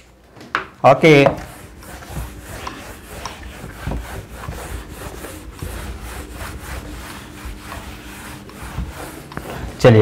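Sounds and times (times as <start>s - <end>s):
whiteboard being wiped: 1.0s - 10.0s.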